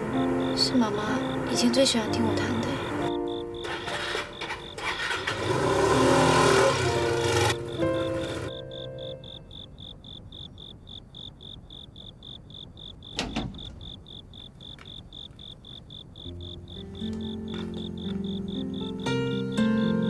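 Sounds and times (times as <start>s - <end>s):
soft music: 0.0s - 9.8s, 16.2s - 20.0s
cricket chirping: 0.0s - 20.0s.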